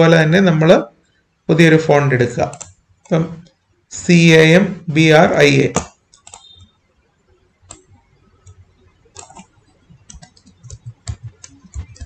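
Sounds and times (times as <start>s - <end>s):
computer mouse clicks: 2.4s - 3.2s, 5.8s - 6.7s, 7.6s - 12.0s.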